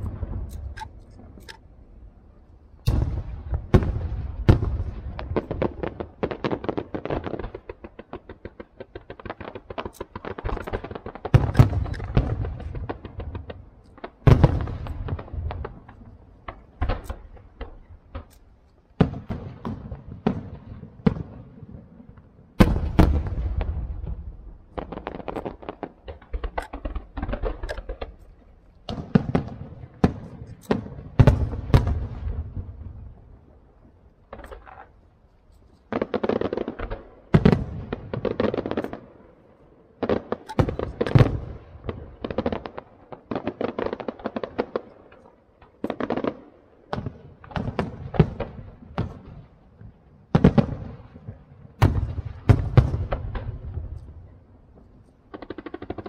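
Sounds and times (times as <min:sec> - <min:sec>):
fireworks booming with echoes: 0:00.0 - 0:35.0, 0:35.9 - 0:56.0
fireworks crackling: 0:00.0 - 0:56.0
sharp firework bangs: 0:02.8 - 0:18.3.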